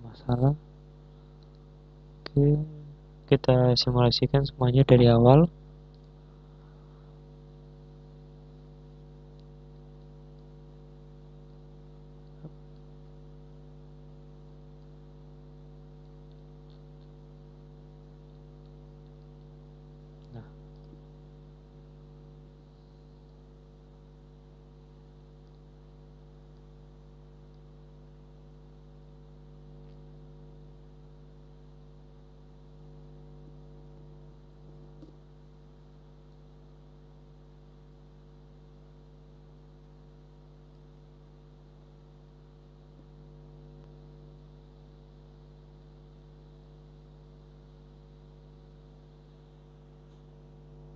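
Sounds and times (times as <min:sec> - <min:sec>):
low electrical hum: 0:00.0 - 0:50.9
faint clicks: 0:05.9 - 0:06.2.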